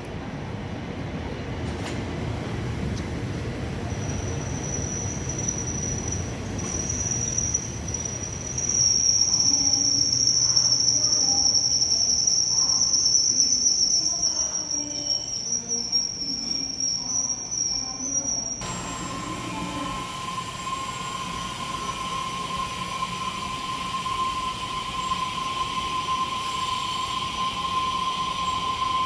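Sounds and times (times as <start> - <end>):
train wheels rumbling on rail: 0.0 - 13.0
high brake squeal: 4.0 - 29.0.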